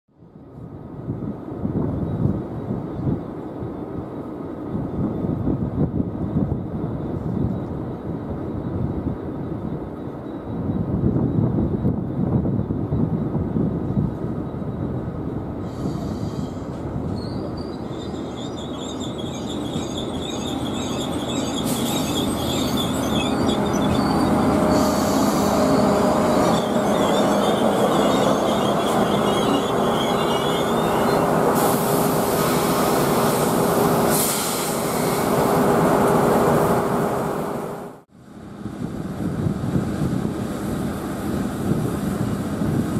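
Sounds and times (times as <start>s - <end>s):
train engines and wheels rumbling: 0.1s - 42.9s
hiss: 15.6s - 16.8s, 31.5s - 35.3s
wavering wheel squeal: 15.9s - 32.7s.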